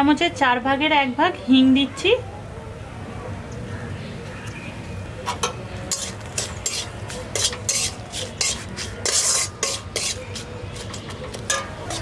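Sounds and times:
spatula scraping metal pan: 5.4 - 12.0
spices sizzling in hot oil: 5.8 - 11.0.

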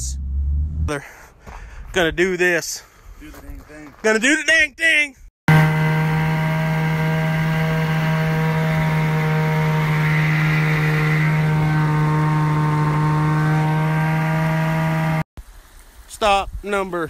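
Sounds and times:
snowmobile engine running: 5.5 - 15.3.

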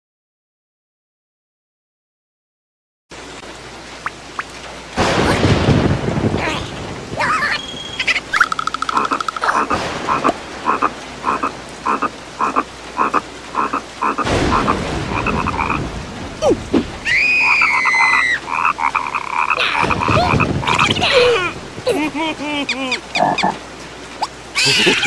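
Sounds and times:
rain falling: 3.1 - 25.0
short croak-like calls: 8.0 - 15.8, 17.5 - 21.0, 23.0 - 23.6
low rumble: 14.2 - 17.8.

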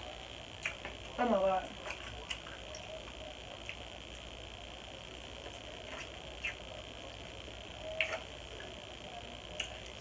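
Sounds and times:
mouth clicks and smacks chewing: 0.6 - 0.9, 8.0 - 8.3, 9.6 - 10.0.

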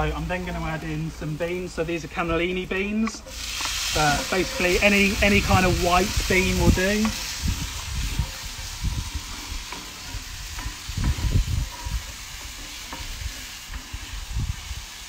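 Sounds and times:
food sizzling in oil: 0.0 - 15.0
wooden spatula scraping a pan: 3.2 - 15.0.

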